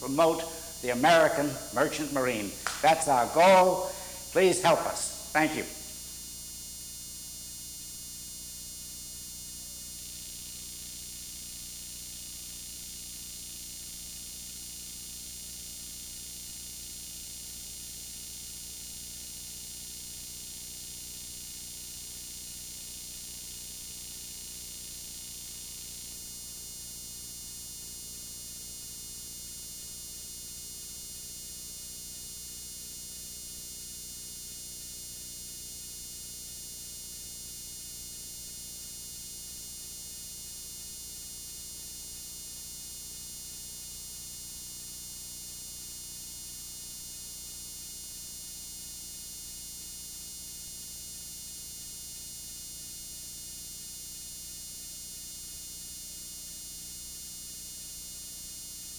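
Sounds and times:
faint high hiss: 0:00.0 - 0:06.2
electrical hum and buzz: 0:00.0 - 0:50.4.

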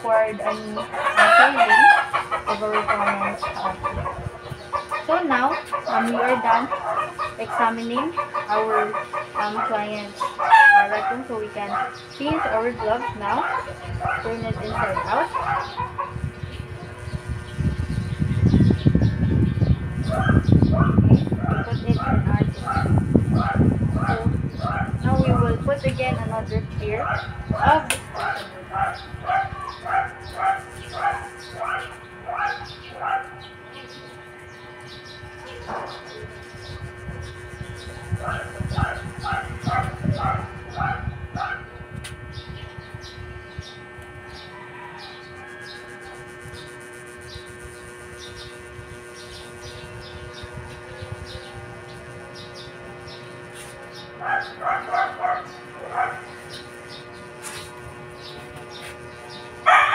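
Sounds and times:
small birds chirping: 0:00.0 - 0:59.9
steady low hum: 0:00.0 - 0:59.9
dog barking: 0:05.4 - 0:15.9, 0:20.0 - 0:25.5, 0:27.0 - 0:33.4, 0:35.5 - 0:36.1, 0:38.2 - 0:41.7, 0:54.2 - 0:56.3, 0:59.7 - 0:59.9.

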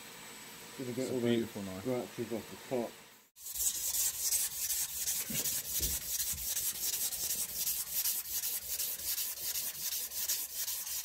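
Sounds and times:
sandpaper rubbing on knife handle: 0:03.4 - 0:11.0.

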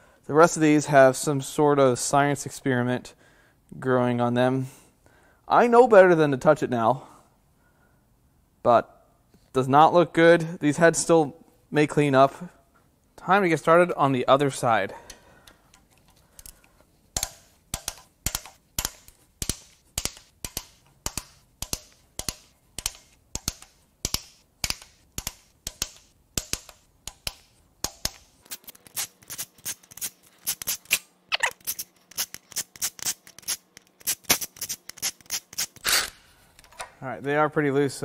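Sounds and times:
faint steady hum: 0:00.0 - 0:32.6
wrench clicking: 0:17.2 - 0:31.0.

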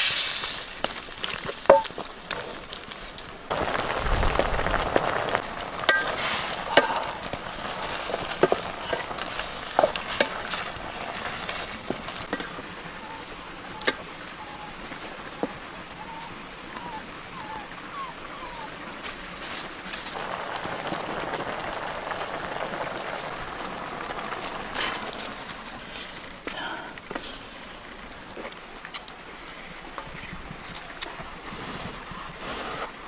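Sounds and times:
food sizzling in a wok: 0:00.0 - 0:12.6, 0:19.5 - 0:26.5.

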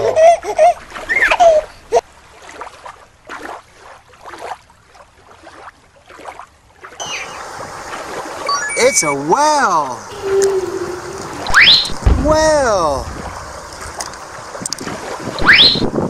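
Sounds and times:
running water: 0:00.0 - 0:16.0
water swishing and splashing: 0:00.0 - 0:16.0
short pitched sounds: 0:10.1 - 0:13.5.

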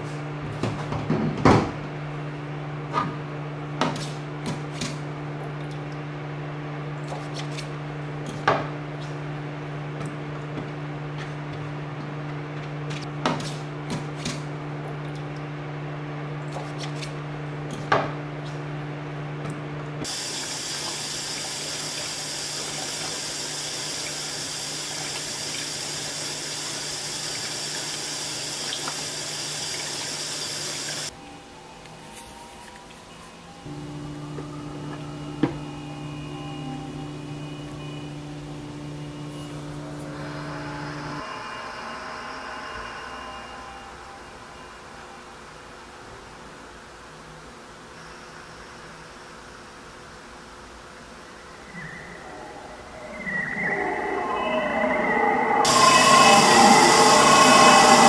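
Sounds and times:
steady low hum: 0:33.4 - 0:47.7, 0:49.6 - 0:58.0.

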